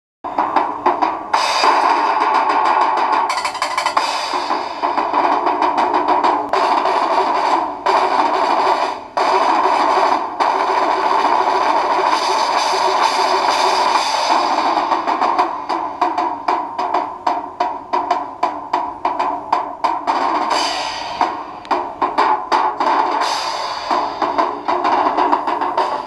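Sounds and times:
drum kit solo: 0.3s - 8.4s.

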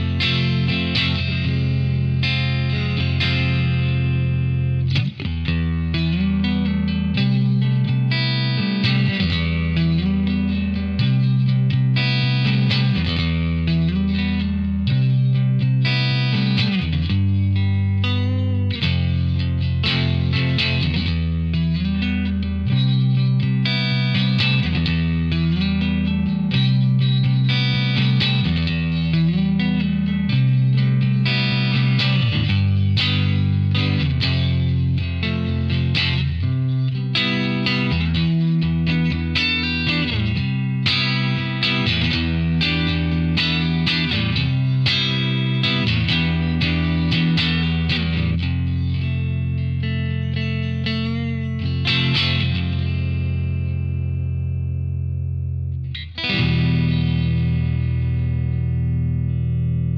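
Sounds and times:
electric guitar chords and notes: 0.0s - 59.9s
guitar slide: 0.0s - 59.9s.

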